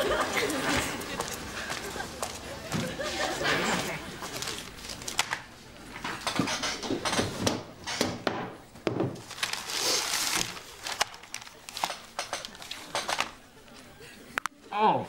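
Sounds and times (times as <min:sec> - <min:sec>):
paper rustling and crinkling: 0:00.4 - 0:06.2, 0:09.2 - 0:13.9.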